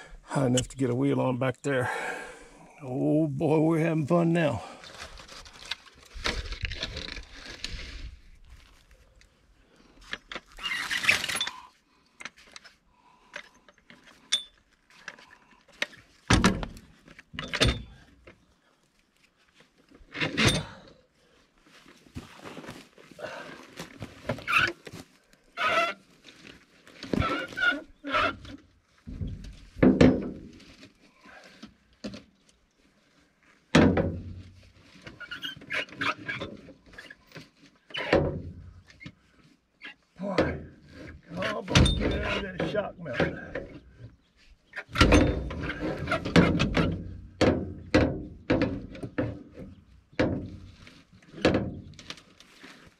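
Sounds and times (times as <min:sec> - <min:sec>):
thunks and metal clanks: 0:16.3 - 0:18.4, 0:28.3 - 0:30.6, 0:33.7 - 0:34.6, 0:38.0 - 0:38.9, 0:40.3 - 0:44.0, 0:44.8 - 0:50.7, 0:51.3 - 0:52.0.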